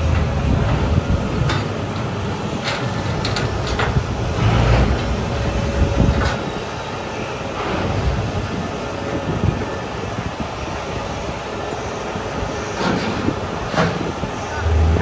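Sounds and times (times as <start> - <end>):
engine rumble: 0.0 - 15.0
tank tracks clanking and squealing: 12.6 - 15.0.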